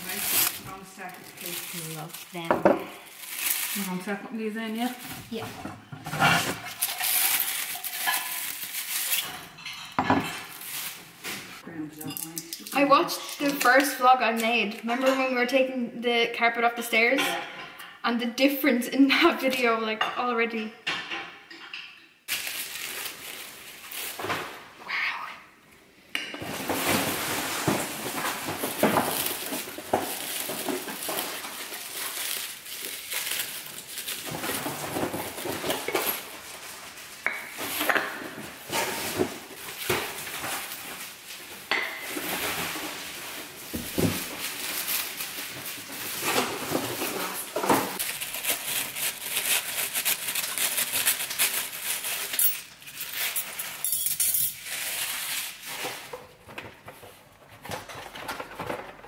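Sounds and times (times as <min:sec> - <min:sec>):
paper packing rustling: 0:00.0 - 0:05.5, 0:06.1 - 0:09.5, 0:10.4 - 0:11.6, 0:22.3 - 0:24.8, 0:26.4 - 0:53.9, 0:54.6 - 0:59.0.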